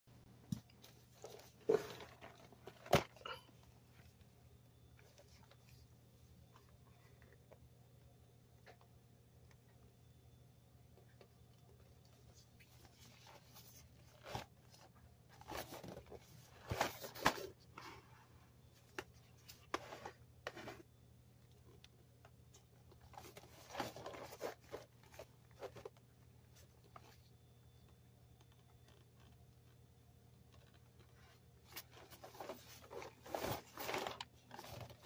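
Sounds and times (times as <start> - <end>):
cardboard box being handled: 31.8 - 35.0.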